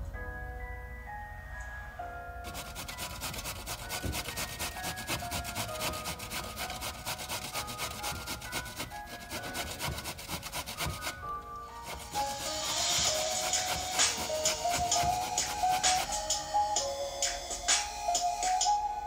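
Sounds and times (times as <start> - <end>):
soft background music: 0.0 - 19.0
pumpkin rasping on metal grater: 2.5 - 11.2, 11.8 - 16.2.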